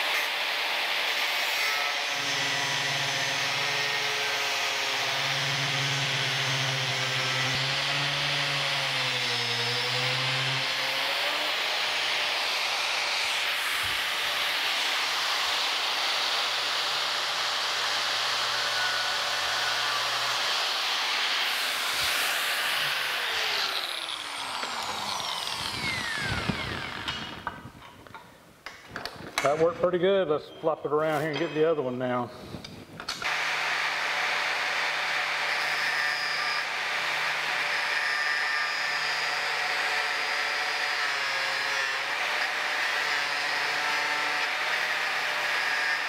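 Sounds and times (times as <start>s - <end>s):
angle grinder cutting steel: 0.0s - 27.7s, 33.2s - 46.0s
grinder winding down: 2.2s - 27.6s.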